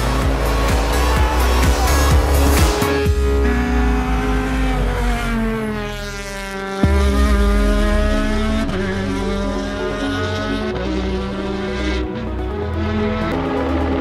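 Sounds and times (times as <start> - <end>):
rally car engine: 0.0 - 14.0
sharp bang: 6.8 - 9.4.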